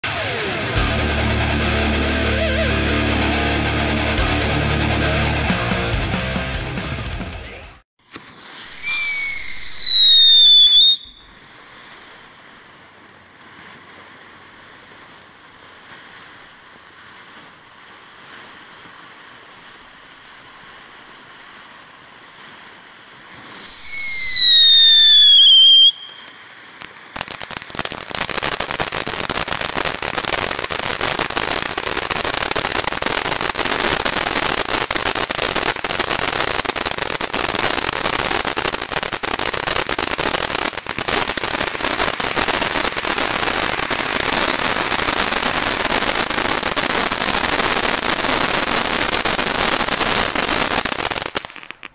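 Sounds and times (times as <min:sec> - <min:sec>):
firework dense crackling: 0:00.0 - 0:51.9
firework falling whistles: 0:08.0 - 0:12.2, 0:23.2 - 0:51.9
hiss of spraying sparks: 0:08.0 - 0:51.9.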